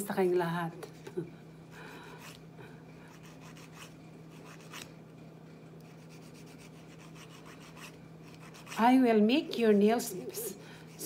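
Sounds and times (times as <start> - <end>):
steady low hum: 0.0 - 11.0
manicure tool scraping fingernails: 3.1 - 4.9, 5.8 - 8.8.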